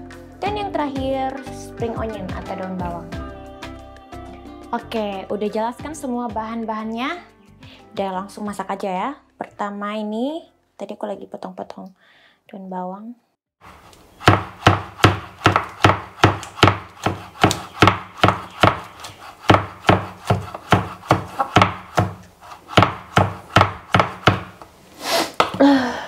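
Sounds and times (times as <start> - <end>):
knife chopping on wooden board: 14.2 - 24.6.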